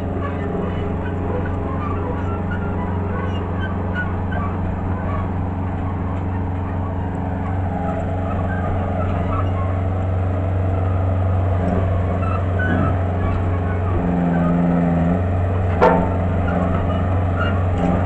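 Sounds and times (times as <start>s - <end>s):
engine running under load: 0.0s - 18.0s.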